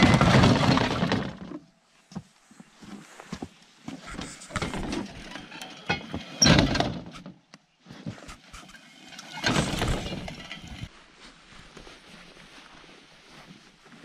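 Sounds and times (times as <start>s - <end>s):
metal clattering and scraping: 0.0s - 1.6s, 4.0s - 7.4s, 8.3s - 10.9s.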